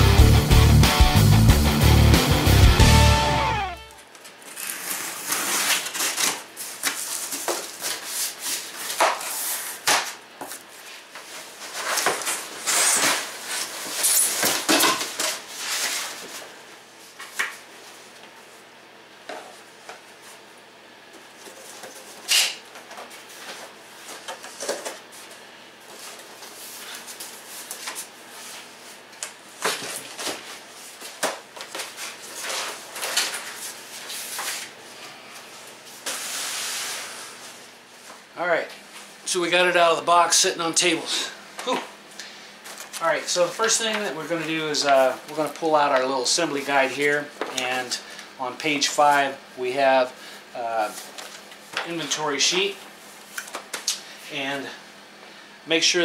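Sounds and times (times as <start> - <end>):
cardboard scraping and rustling: 4.4 - 9.9.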